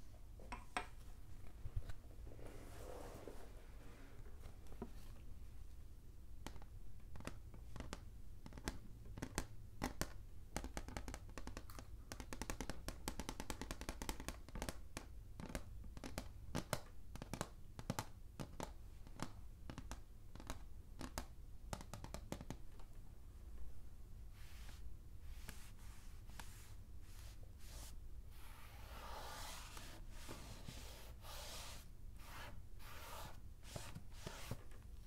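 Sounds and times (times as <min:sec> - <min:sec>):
fingertips tapping on chalkboard: 0:07.2 - 0:22.6.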